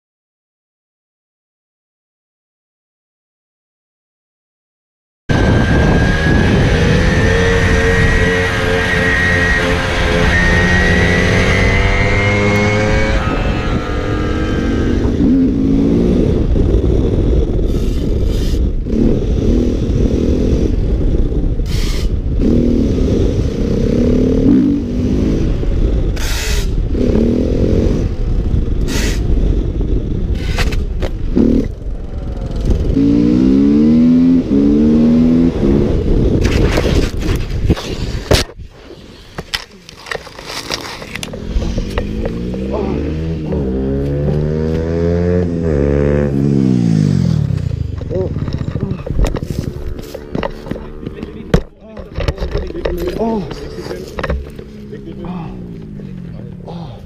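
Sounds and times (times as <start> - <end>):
motorcycle engine accelerating hard: 5.3 - 38.6, 40.0 - 57.0
wind rush: 5.3 - 54.5
moped engine whining: 5.3 - 57.0
motorcycle crash scraping: 36.4 - 42.7.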